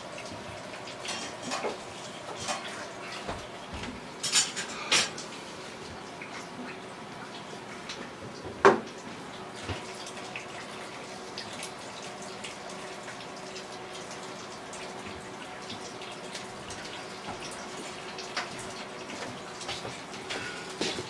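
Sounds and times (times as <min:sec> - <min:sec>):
water dripping: 0:05.1 - 0:21.0.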